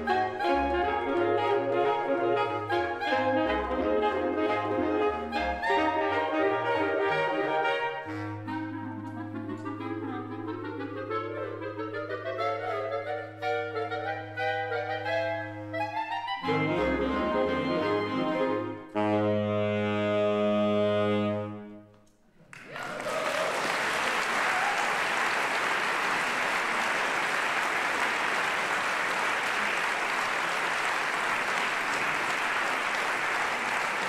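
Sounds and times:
woodwind ensemble chord: 0.0s - 21.9s
audience applause: 22.4s - 34.0s.

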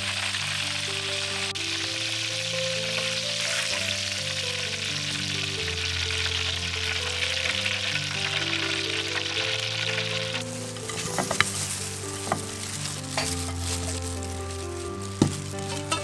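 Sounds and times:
food deep-frying in hot oil: 0.0s - 16.0s
soft background music: 0.0s - 16.0s.

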